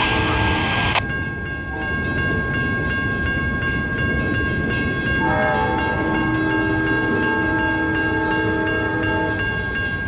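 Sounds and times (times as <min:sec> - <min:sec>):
high ringing tones: 0:00.0 - 0:10.0
steel wheels rumbling on rail: 0:00.0 - 0:10.0
train horn: 0:05.2 - 0:09.8.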